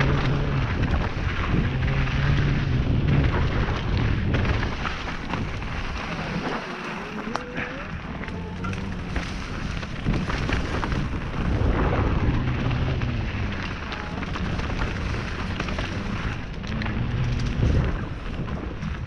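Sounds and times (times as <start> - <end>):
bike rattling: 0.0 - 19.0
tyres crunching over gravel: 0.0 - 19.0
wind rumble on microphone: 0.0 - 19.0.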